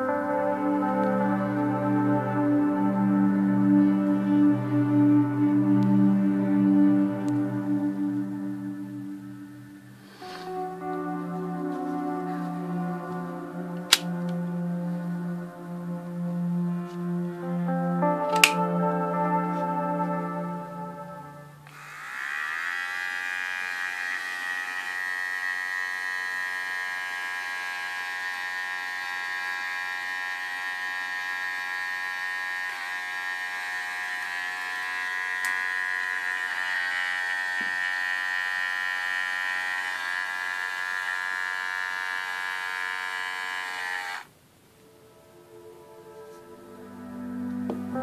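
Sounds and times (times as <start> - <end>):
hair clipper motor buzzing: 10.0 - 11.2, 21.6 - 44.3.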